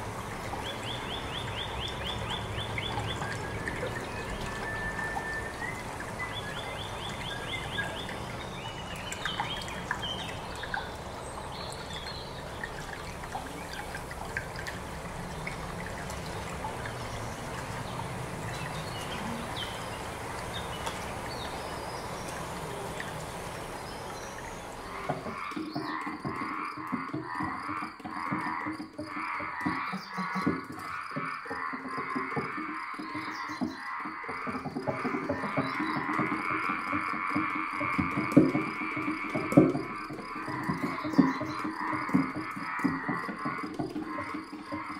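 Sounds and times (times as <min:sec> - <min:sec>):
steady hiss: 0:00.0 - 0:25.5.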